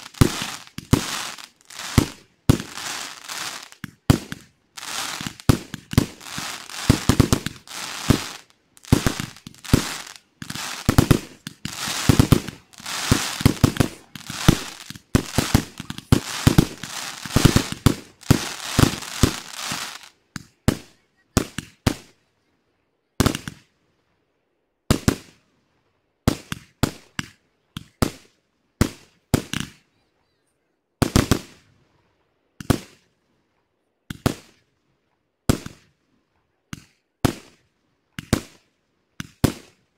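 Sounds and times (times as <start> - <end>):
fireworks bursting and crackling: 0.0 - 22.1, 23.2 - 23.6, 24.9 - 25.4, 28.8 - 29.8, 31.0 - 31.7, 32.6 - 33.0, 34.1 - 34.6, 35.5 - 35.9, 36.7 - 37.6, 38.2 - 38.6, 39.2 - 39.8.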